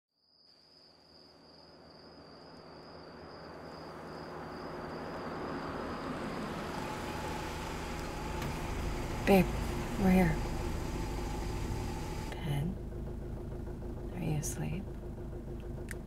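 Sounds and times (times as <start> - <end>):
crickets chirring: 0.2 - 12.4
car engine and tyres approaching: 2.6 - 16.0.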